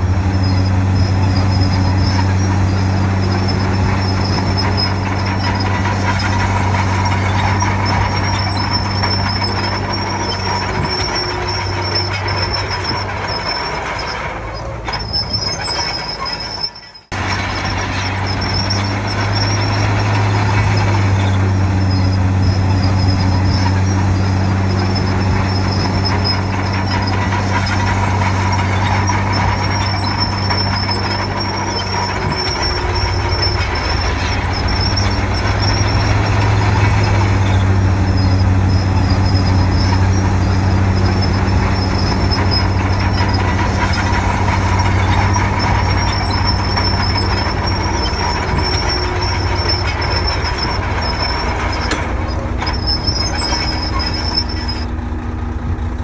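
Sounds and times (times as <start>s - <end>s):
high-pitched squeal: 0.0s - 55.0s
bulldozer diesel engine running: 0.0s - 56.0s.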